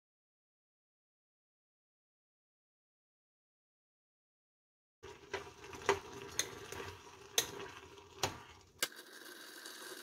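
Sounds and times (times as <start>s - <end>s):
water boiling and bubbling: 5.0s - 10.0s.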